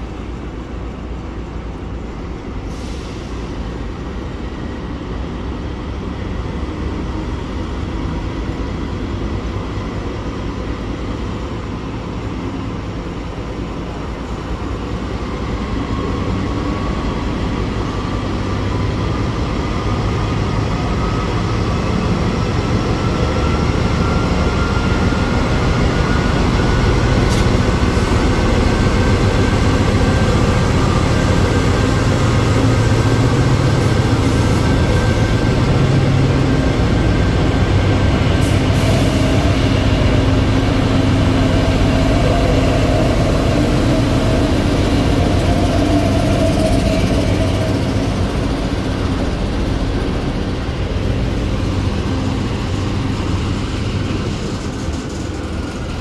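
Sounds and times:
locomotive engine rumble: 0.0 - 56.0
rising whine: 27.9 - 56.0.

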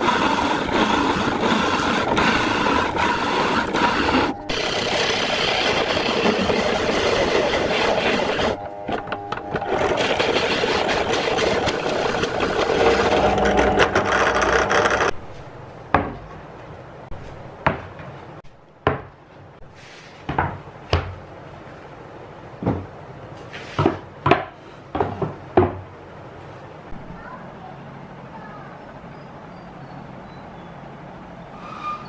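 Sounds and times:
drill press cutting plywood: 0.0 - 15.2
wooden boards knocking on workbench: 20.3 - 21.2, 22.6 - 22.9, 23.8 - 25.8.

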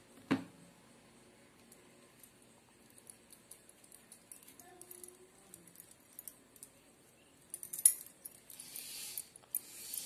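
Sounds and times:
bangles clinking: 2.9 - 10.0.

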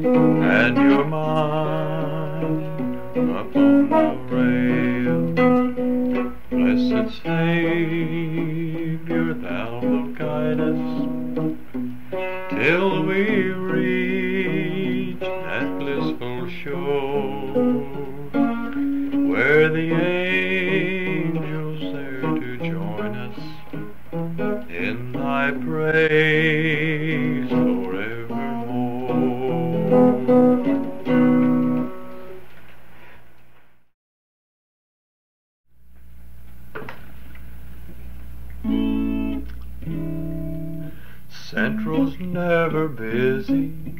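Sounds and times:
man singing: 0.0 - 11.6, 12.2 - 31.9, 38.6 - 43.9
acoustic guitar: 0.0 - 33.2, 38.5 - 43.9.

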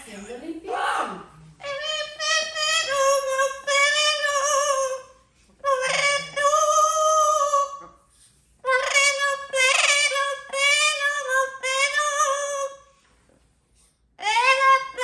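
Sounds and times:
parrot singing: 1.6 - 8.0, 8.6 - 12.9, 14.2 - 15.0.

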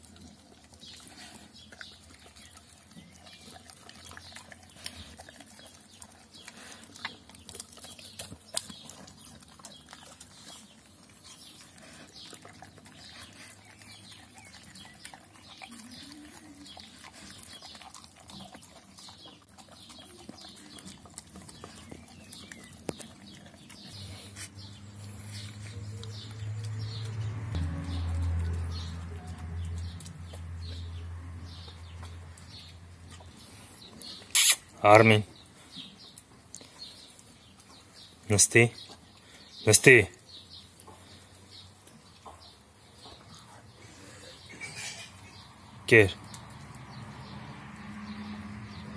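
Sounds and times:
teeth clicking on metal bowl: 0.0 - 24.0
dog chewing wet food: 0.0 - 34.3.

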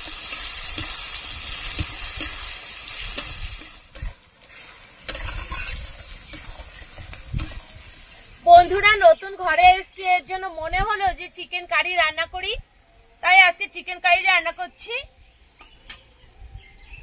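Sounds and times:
food sizzling in oil: 0.0 - 12.2
utensil scraping pan: 1.7 - 9.0.

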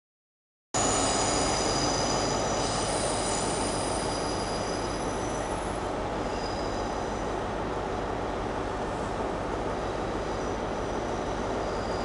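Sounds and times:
high wheel squeal: 0.8 - 7.4, 10.3 - 12.0
train rumbling over tracks: 0.8 - 12.0.

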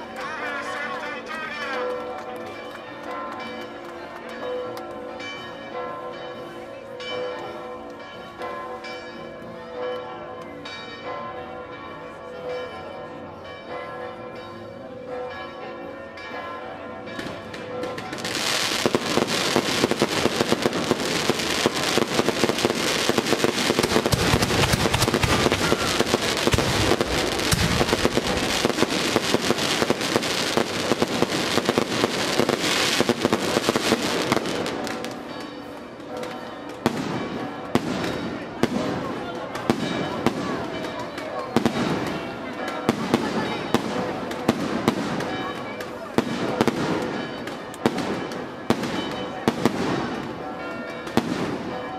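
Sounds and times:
church bells pealing: 0.0 - 51.9
heavy firework bangs: 17.2 - 35.0
firecrackers crackling: 17.2 - 35.3, 36.7 - 50.4, 51.0 - 51.8.

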